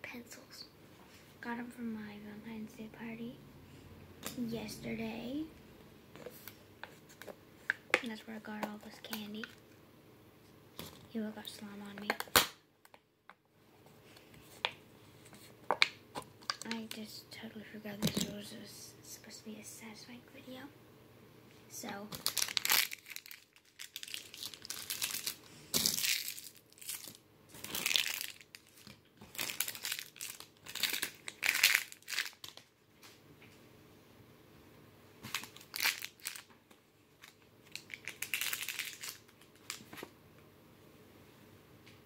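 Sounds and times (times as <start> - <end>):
crinkling and crushing handling: 21.8 - 33.2, 35.2 - 40.2.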